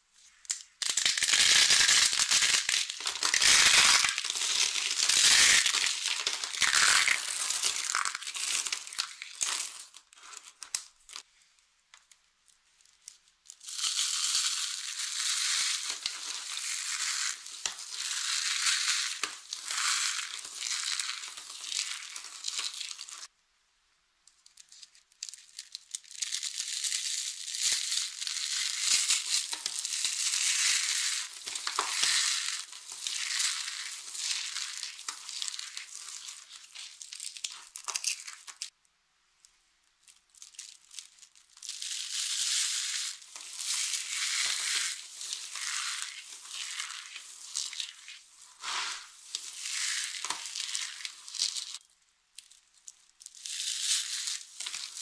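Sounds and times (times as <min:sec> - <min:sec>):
soap curls crackling: 0:00.2 - 0:11.3, 0:11.9 - 0:23.3, 0:24.4 - 0:38.8, 0:39.9 - 0:55.0
soap shavings crunching: 0:00.8 - 0:11.2, 0:25.3 - 0:38.7, 0:40.3 - 0:51.8.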